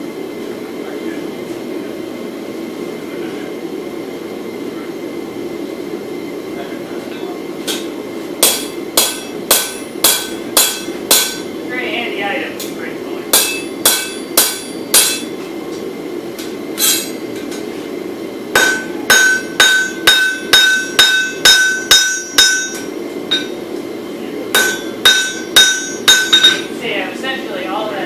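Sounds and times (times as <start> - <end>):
hammer striking steel on anvil: 7.7 - 11.5, 13.3 - 15.4, 16.8 - 17.2, 18.6 - 23.6, 24.5 - 26.7.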